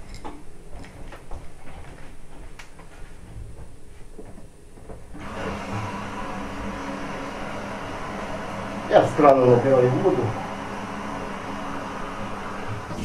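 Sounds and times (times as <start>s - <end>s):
faint footsteps: 0.1s - 5.9s.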